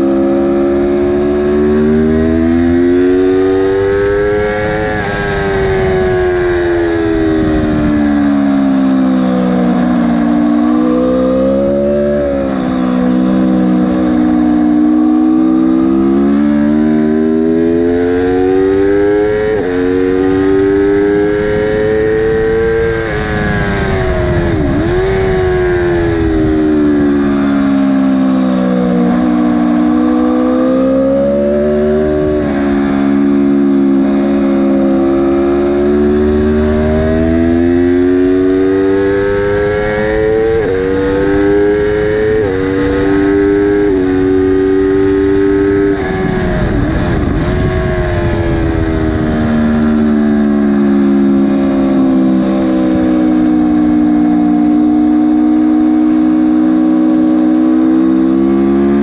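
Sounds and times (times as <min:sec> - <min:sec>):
wind noise: 0:00.0 - 0:10.7, 0:11.4 - 0:28.1, 0:29.0 - 0:55.3
motorcycle engine revving: 0:00.0 - 0:59.0.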